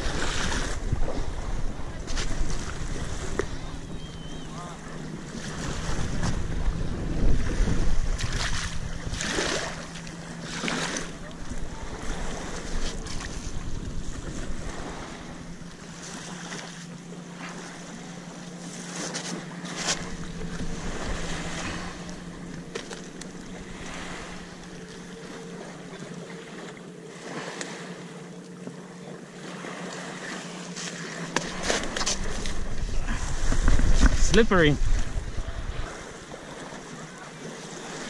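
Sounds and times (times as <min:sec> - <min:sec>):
wind buffeting microphone: 0:00.0 - 0:15.9, 0:31.5 - 0:36.3.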